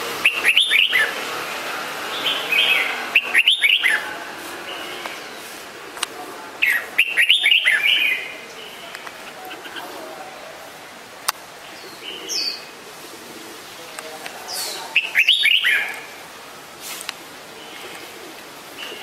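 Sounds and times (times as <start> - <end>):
bird singing chirpy phrases: 0.2 - 1.2, 2.1 - 5.5, 6.6 - 9.9, 11.6 - 12.8, 13.6 - 16.2.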